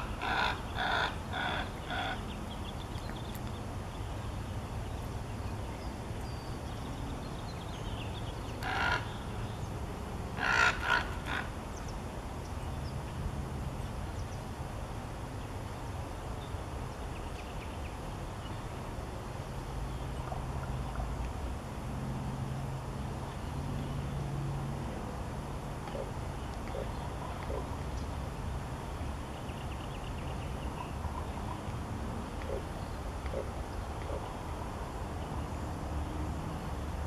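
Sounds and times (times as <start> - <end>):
crow cawing harshly: 0.0 - 2.2, 8.6 - 9.2, 10.4 - 11.5.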